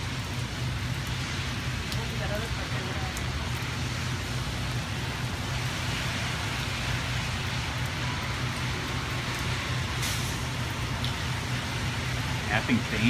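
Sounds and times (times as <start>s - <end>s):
steady rain hiss: 0.0s - 13.0s.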